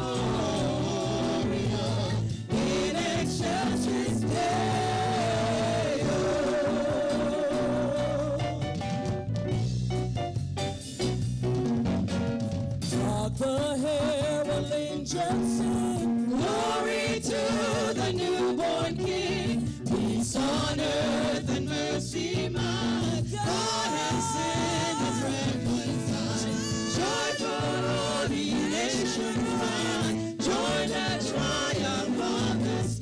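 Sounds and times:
group singing gospel: 0.0 - 8.8, 15.5 - 33.0
lead singer voice: 0.0 - 8.8, 19.7 - 33.0
live band playing: 0.0 - 33.0.

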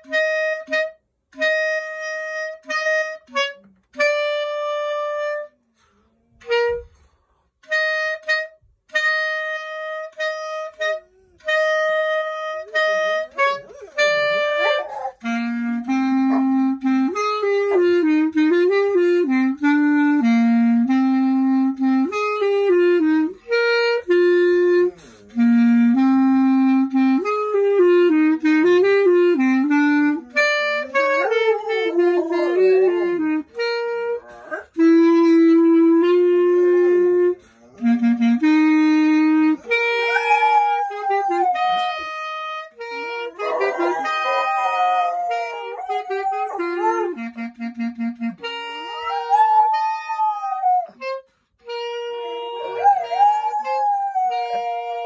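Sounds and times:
clarinet melody: 0.0 - 55.0
dog howling: 14.6 - 15.2, 30.9 - 33.3, 34.2 - 34.7, 39.6 - 42.0, 43.3 - 47.2, 48.8 - 51.0, 52.3 - 55.0.

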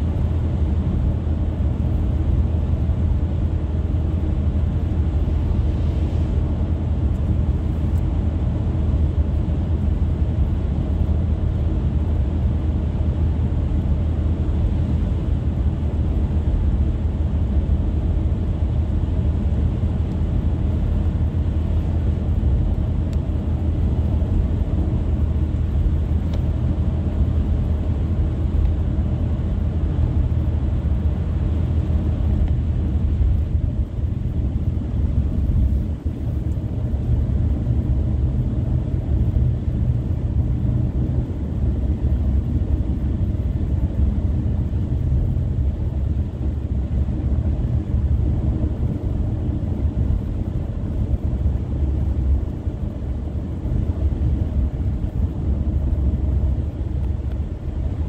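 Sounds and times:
car tyres and engine rumble: 0.0 - 58.0.

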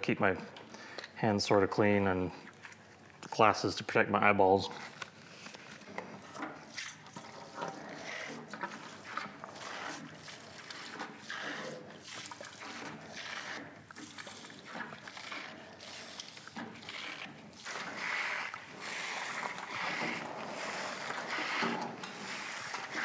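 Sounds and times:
hand plunger pump strokes: 4.7 - 23.0
liquid sloshing and gurgling: 4.7 - 23.0.

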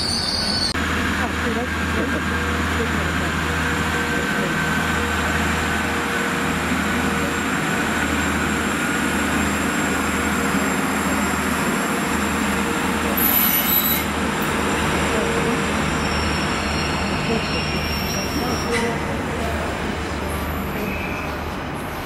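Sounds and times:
high-pitched train squeal: 0.0 - 0.8, 13.2 - 14.2, 15.4 - 19.2, 20.6 - 21.6
train rumbling along tracks: 0.0 - 22.0.

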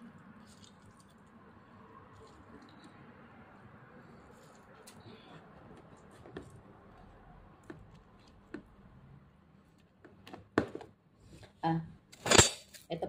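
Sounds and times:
lemon squishing: 0.0 - 8.8.

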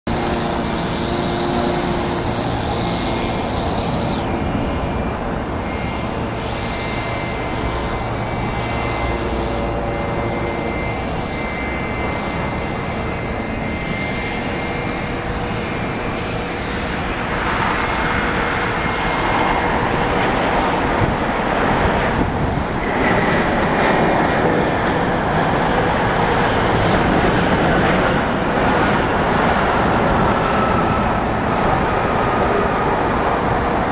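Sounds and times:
jet engines roaring: 0.0 - 33.9.

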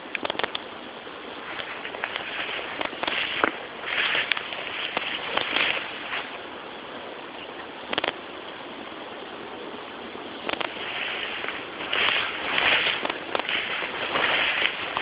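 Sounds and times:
sharp clicks: 0.1 - 0.7, 7.9 - 8.2, 10.4 - 10.8
brushing through tall grass: 1.3 - 6.4, 10.7 - 15.0.

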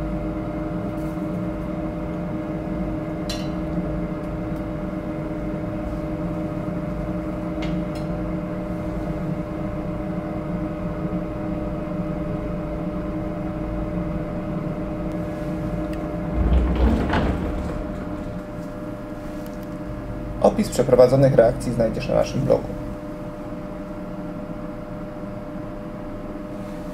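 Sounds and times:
low machine hum: 1.5 - 26.9
low thump: 16.2 - 18.8.

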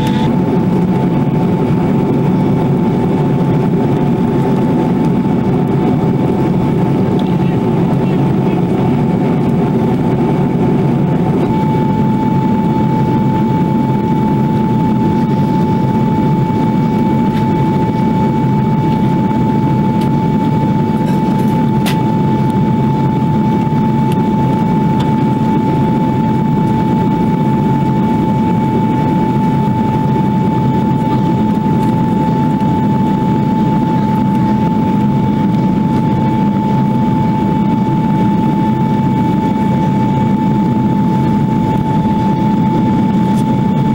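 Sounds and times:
jet cabin engine roar: 0.0 - 43.9
steady single-pitch whine: 0.0 - 43.9.

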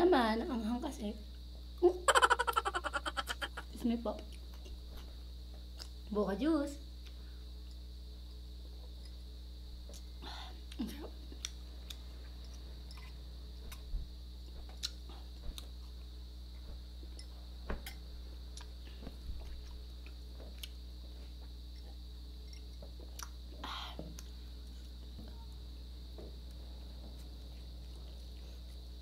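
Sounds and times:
steady low hum: 0.0 - 29.0
person chewing: 14.7 - 16.0, 23.1 - 23.4.

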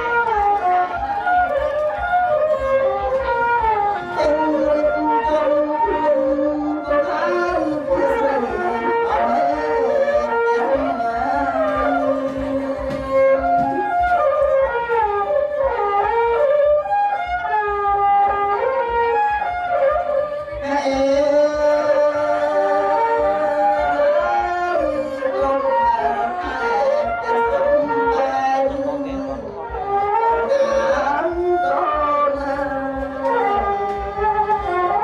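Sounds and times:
reedy wind instrument melody: 0.0 - 35.0
man singing through microphone: 4.0 - 13.8, 20.5 - 33.8.

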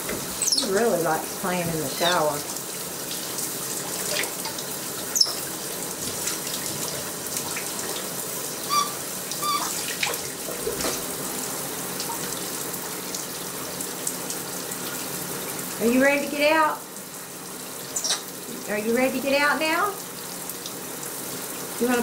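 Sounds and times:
shower spray hissing: 0.0 - 3.3
short high squeaks: 5.2 - 5.4, 8.6 - 9.8, 17.9 - 18.3.

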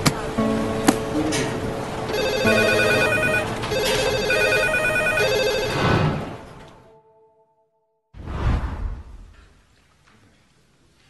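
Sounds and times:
telephone ringing: 2.1 - 5.9.

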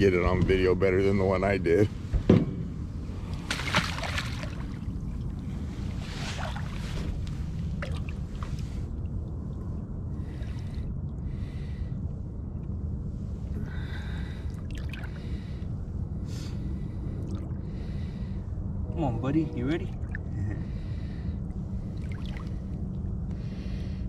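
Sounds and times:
steady low rumble: 0.0 - 24.0
water splashing and sloshing: 3.1 - 11.1, 14.1 - 15.7, 16.8 - 18.2, 19.9 - 23.3.

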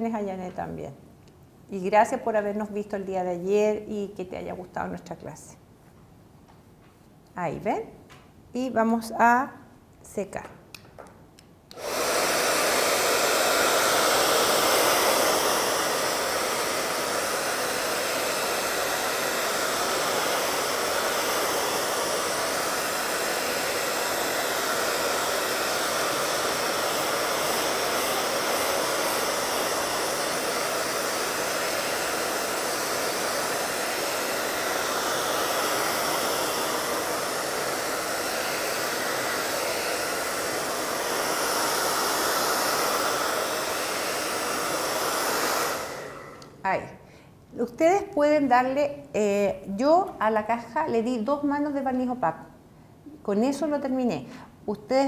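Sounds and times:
hair dryer blowing: 11.7 - 46.8.

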